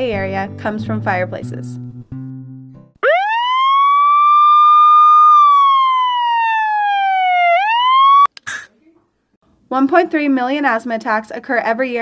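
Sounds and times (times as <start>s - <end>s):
ambulance siren wailing: 3.0s - 8.3s.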